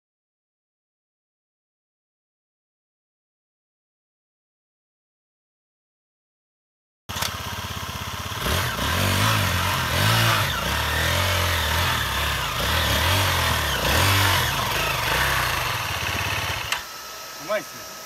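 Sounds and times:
dirt bike engine revving: 0:07.1 - 0:16.9.

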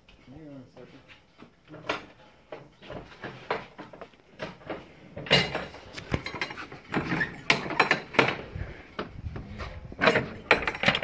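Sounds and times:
objects clicking and rattling: 0:02.8 - 0:11.0.

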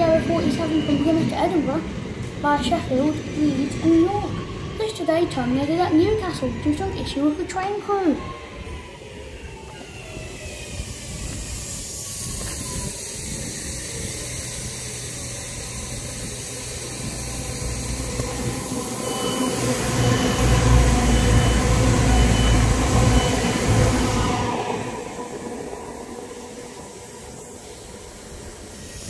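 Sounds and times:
train passing: 0:00.0 - 0:29.0
heavy low rumble: 0:14.4 - 0:28.6.

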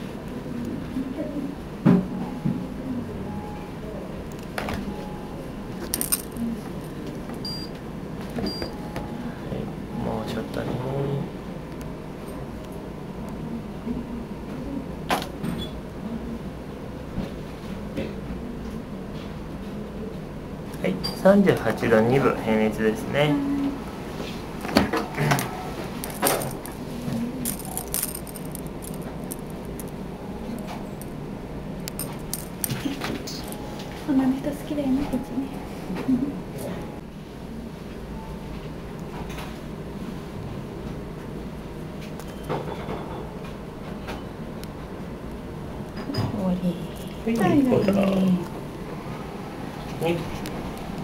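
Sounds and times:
metal charm jingling: 0:06.0 - 0:07.7, 0:26.0 - 0:31.2, 0:31.8 - 0:33.6.

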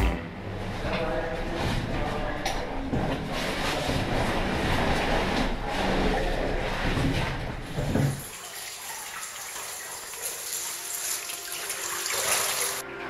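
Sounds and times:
water sloshing and splashing: 0:01.0 - 0:12.8
water trickling: 0:08.1 - 0:12.8.

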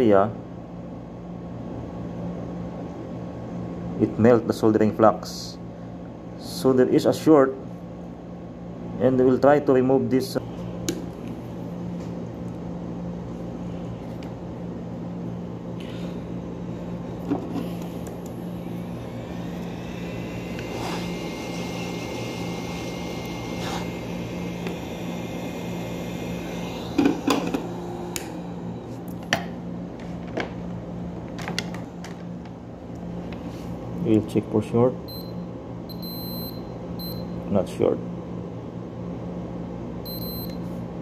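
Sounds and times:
hot air blower blowing: 0:13.2 - 0:31.9.

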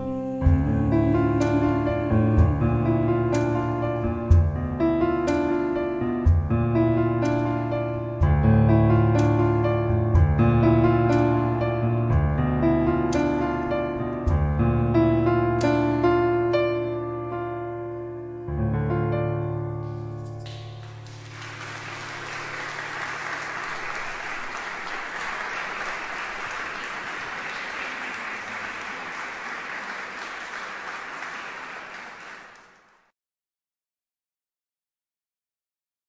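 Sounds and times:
electric piano chords: 0:00.0 - 0:24.2
audience applause: 0:20.8 - 0:33.1.

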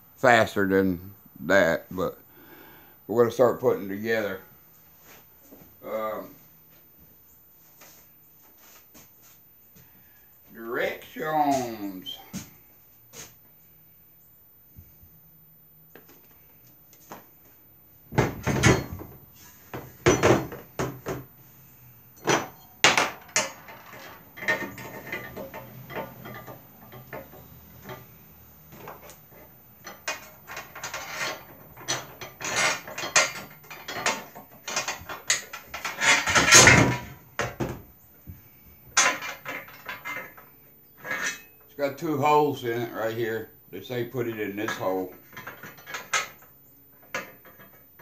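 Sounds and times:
metal rails knocking and clattering: 0:22.2 - 0:28.1, 0:28.7 - 0:37.8.

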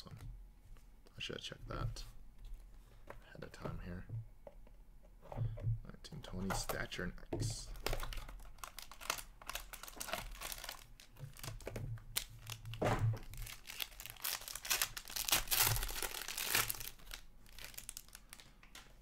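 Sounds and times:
cards rustling: 0:07.7 - 0:19.0
wrapper crinkling and tearing: 0:07.8 - 0:19.0.

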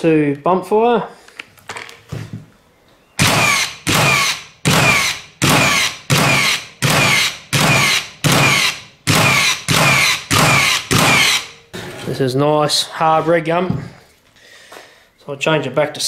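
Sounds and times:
nail gun firing: 0:03.2 - 0:11.6.

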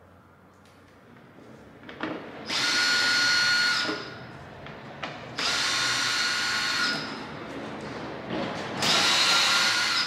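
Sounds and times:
cordless power tool whirring: 0:02.5 - 0:04.2, 0:05.4 - 0:07.1, 0:08.8 - 0:10.0.

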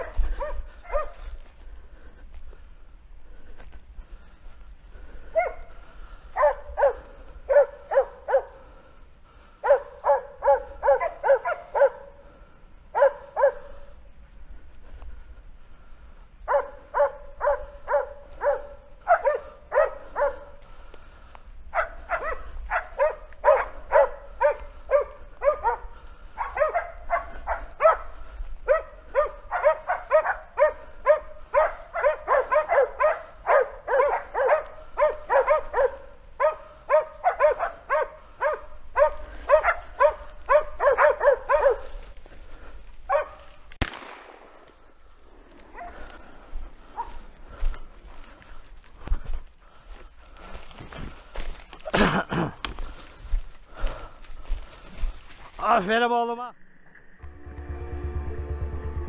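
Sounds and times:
dogs barking: 0:00.0 - 0:01.3, 0:05.2 - 0:14.0, 0:16.4 - 0:20.8, 0:21.7 - 0:43.6, 0:45.7 - 0:47.6
loud shotgun shot: 0:43.8 - 0:44.7.

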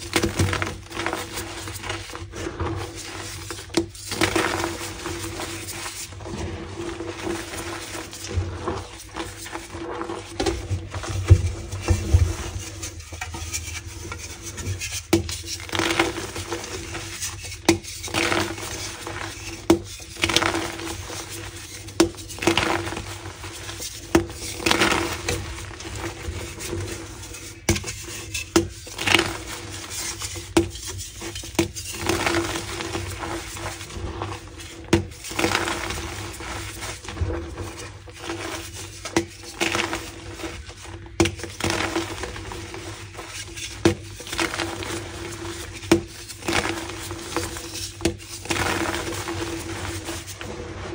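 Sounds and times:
chalk blocks crunching: 0:00.0 - 0:50.9
chalk crumbling: 0:00.0 - 0:50.9.

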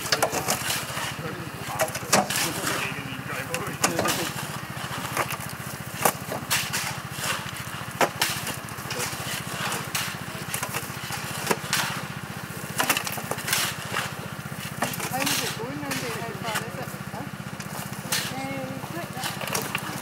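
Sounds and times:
shovels scraping gravel: 0:00.0 - 0:17.0, 0:17.6 - 0:20.0
small engine idling: 0:00.0 - 0:20.0.

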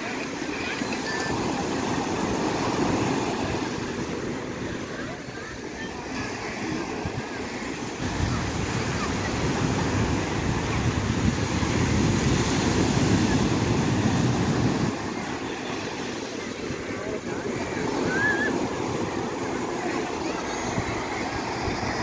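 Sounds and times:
surf breaking on shore: 0:00.0 - 0:22.0
wind buffeting microphone: 0:06.4 - 0:15.3, 0:16.8 - 0:22.0.

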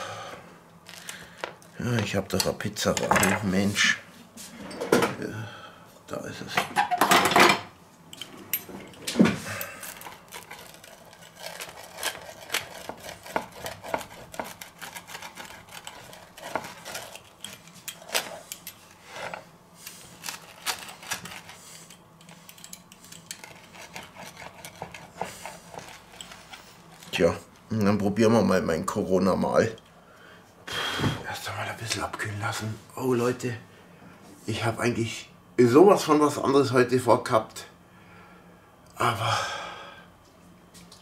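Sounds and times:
pizza cutter crunching through pizza: 0:09.4 - 0:27.5
cutter scraping wooden board: 0:10.3 - 0:17.2, 0:23.4 - 0:26.1.

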